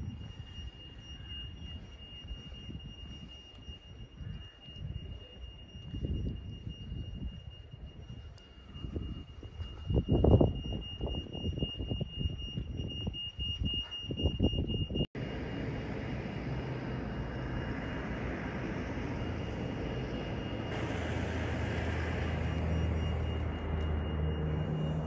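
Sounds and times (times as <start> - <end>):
wind gusting on microphone: 0.0 - 25.0
jet whine: 14.7 - 25.0
airport apron noise: 15.2 - 25.0
even rushing noise: 15.2 - 25.0.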